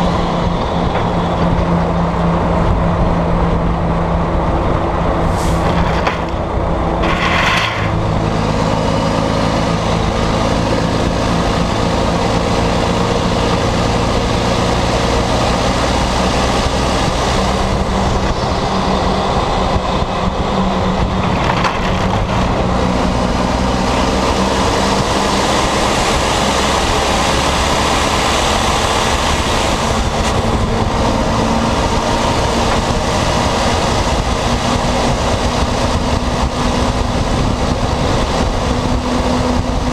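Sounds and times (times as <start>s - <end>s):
loud diesel truck engine: 0.0s - 39.9s.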